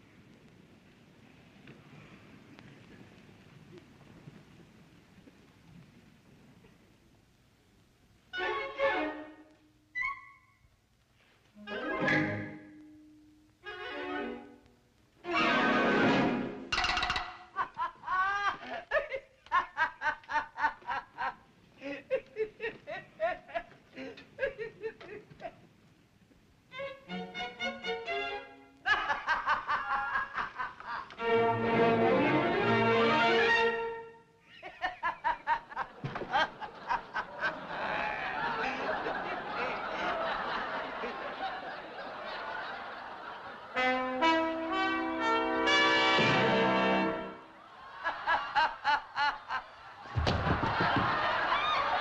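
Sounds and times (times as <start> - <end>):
person laughing: 17.6 - 25.6, 34.5 - 39.8.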